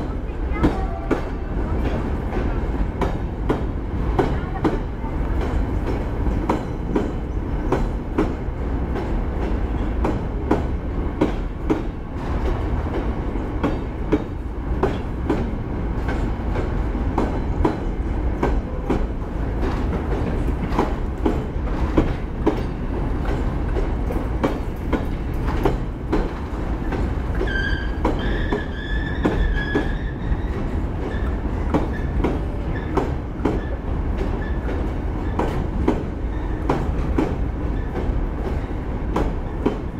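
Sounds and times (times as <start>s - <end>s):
low train rumble: 0.0s - 39.9s
train wheels clattering on rail joints: 0.0s - 39.9s
high squeal from running gear: 27.5s - 31.3s.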